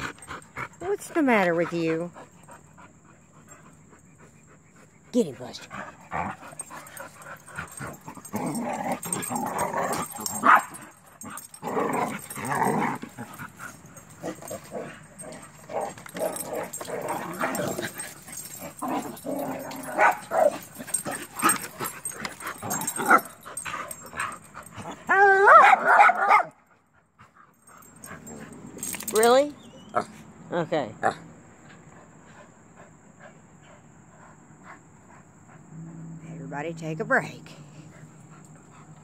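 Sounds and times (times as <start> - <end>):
dogs growling while play-fighting: 0.0 - 25.5, 27.2 - 29.2, 31.0 - 36.3
sharp loud dog barks: 25.5 - 26.5.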